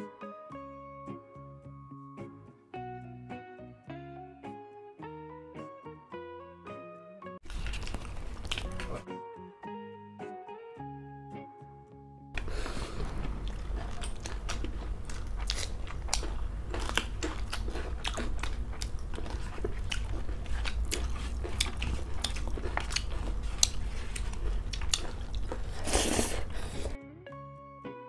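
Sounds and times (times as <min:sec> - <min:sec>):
chewing and crunching: 0:07.4 - 0:09.0, 0:12.4 - 0:27.0
steady low hum: 0:12.4 - 0:27.0.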